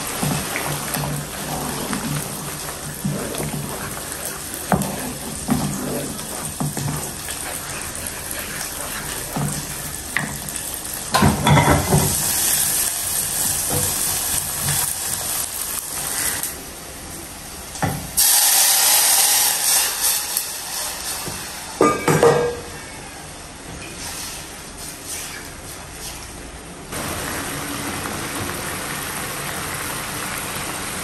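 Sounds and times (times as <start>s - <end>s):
spatula scraping and knocking pan: 0.0s - 12.5s
paste sizzling in wok: 0.0s - 16.6s, 18.2s - 21.9s.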